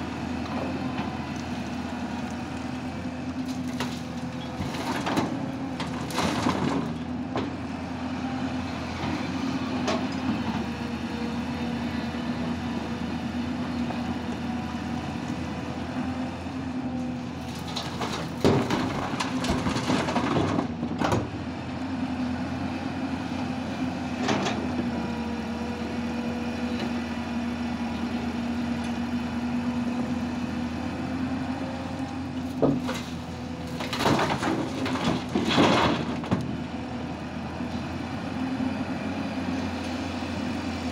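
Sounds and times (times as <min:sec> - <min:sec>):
excavator diesel engine: 0:00.0 - 0:40.9
soil and stones pouring into truck: 0:17.4 - 0:21.3, 0:32.4 - 0:36.5.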